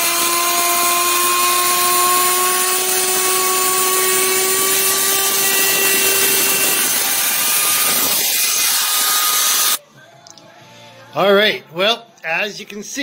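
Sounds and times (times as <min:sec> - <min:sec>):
hiss of router cutting: 0:00.0 - 0:09.8
router motor whine: 0:00.0 - 0:09.8.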